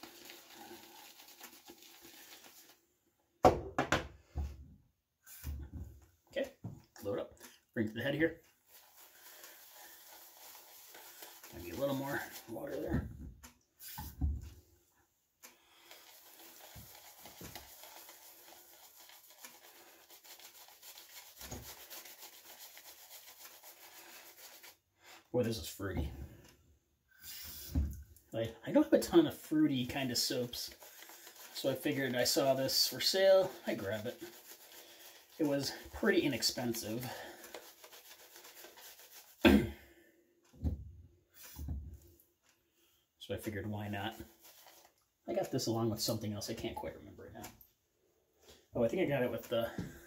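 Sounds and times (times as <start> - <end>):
shaving brush swirling on soap: 0.0 - 2.9, 7.0 - 13.0, 15.5 - 26.0, 28.4 - 39.5, 43.4 - 46.8.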